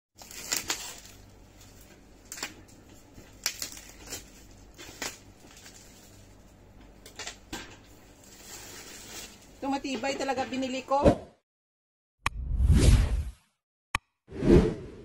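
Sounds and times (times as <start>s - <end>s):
plastic wrap crinkling: 0.2s - 9.9s.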